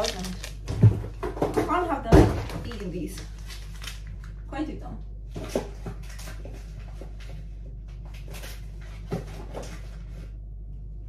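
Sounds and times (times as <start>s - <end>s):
packaging rustling: 0.0s - 1.2s, 2.4s - 4.4s, 5.4s - 7.3s
steady low hum: 0.0s - 11.0s.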